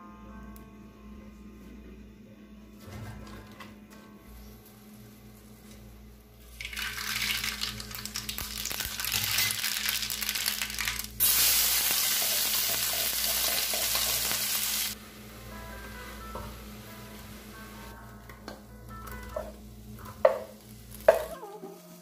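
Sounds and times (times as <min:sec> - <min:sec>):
steady sizzle: 0:06.2 - 0:18.0, 0:19.0 - 0:22.0
seeds crackling in hot oil: 0:06.4 - 0:15.0.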